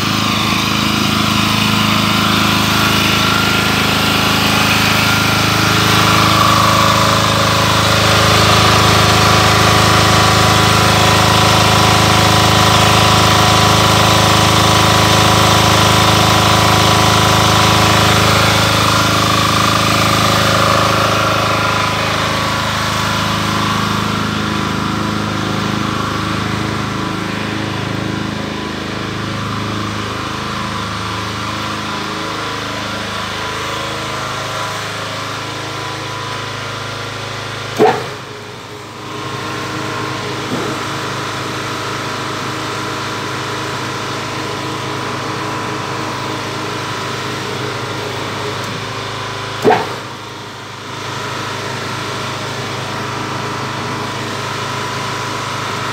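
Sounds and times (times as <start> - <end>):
diesel generator engine drone: 0.0 - 55.9.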